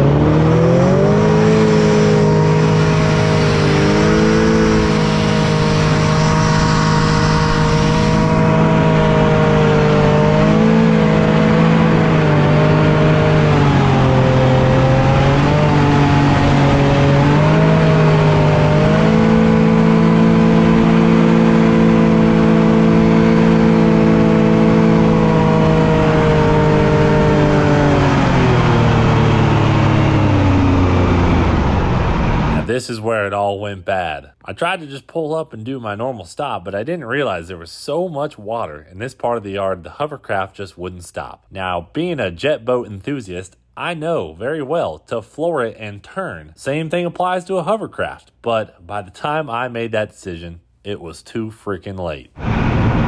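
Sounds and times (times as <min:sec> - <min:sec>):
hovercraft engine and fan: 0:00.0 - 0:32.7.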